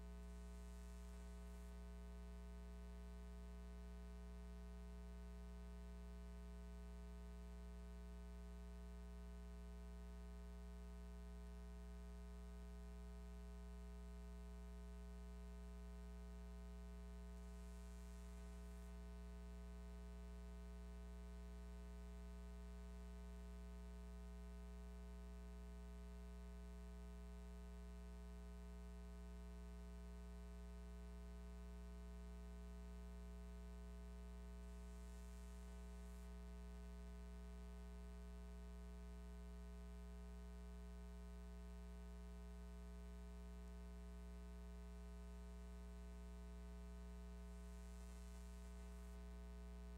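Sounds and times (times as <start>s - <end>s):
low electrical hum: 0.0s - 4.8s, 32.4s - 41.7s.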